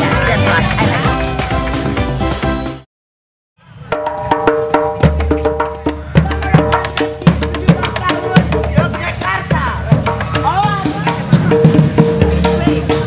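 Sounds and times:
percussion beat: 0:00.0 - 0:02.8, 0:03.8 - 0:13.0.

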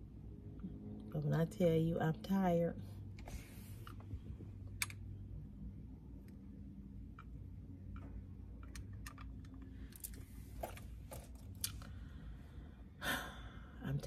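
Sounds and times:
low steady hum in car: 0:00.0 - 0:14.0
bracelets clicking and tapping: 0:07.0 - 0:12.0.

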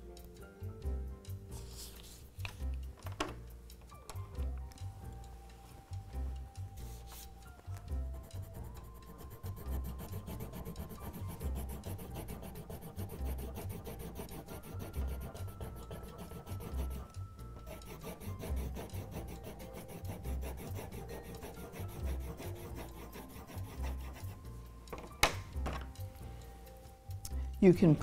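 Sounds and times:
pencil scratching on paper: 0:08.2 - 0:24.5.

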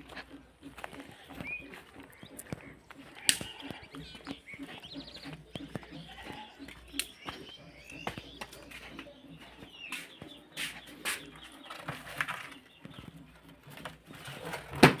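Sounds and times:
bird calls: 0:00.0 - 0:15.0
plastic basket knocks and rustling: 0:14.6 - 0:15.0.

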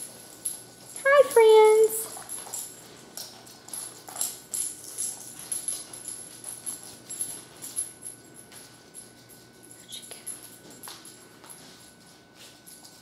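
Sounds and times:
dog claws clicking on wood floor: 0:02.0 - 0:07.9.

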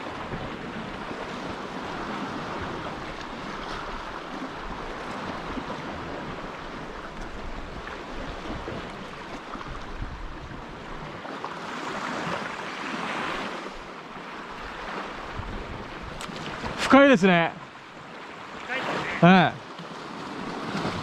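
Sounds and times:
wind buffeting microphone: 0:00.0 - 0:11.1, 0:14.6 - 0:16.8
surf washing against rocks: 0:00.0 - 0:21.0.

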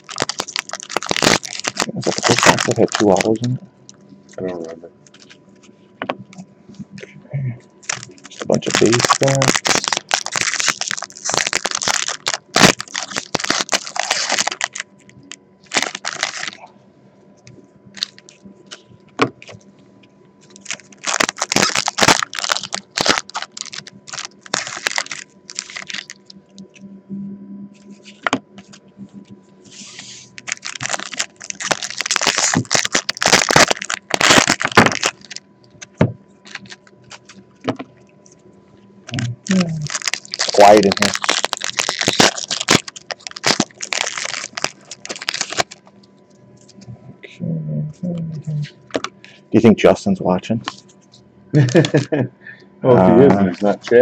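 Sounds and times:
wrappers crinkling and tearing: 0:00.0 - 0:03.6, 0:07.8 - 0:16.6, 0:18.0 - 0:18.8, 0:20.4 - 0:26.7, 0:29.8 - 0:35.4, 0:36.4 - 0:37.8, 0:39.1 - 0:45.9, 0:51.6 - 0:52.1, 0:53.2 - 0:54.0
cards clicking and rustling: 0:07.9 - 0:14.8.

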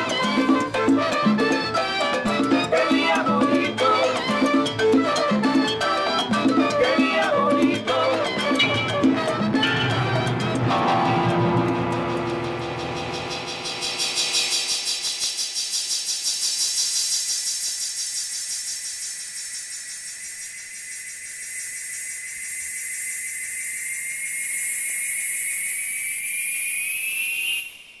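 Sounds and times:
thin tone rising in pitch: 0:00.0 - 0:15.5
pulsing electronic hiss: 0:10.3 - 0:26.5.

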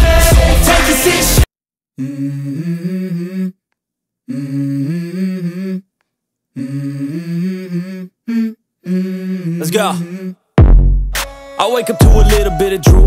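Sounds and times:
hummed vocal melody: 0:02.0 - 0:03.6, 0:04.2 - 0:05.9, 0:06.5 - 0:10.5, 0:11.6 - 0:13.0.

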